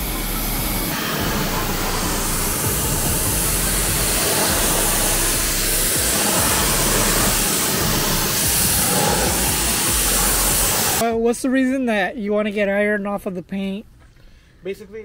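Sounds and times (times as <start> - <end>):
water spraying on car wheel: 0.0 - 11.0.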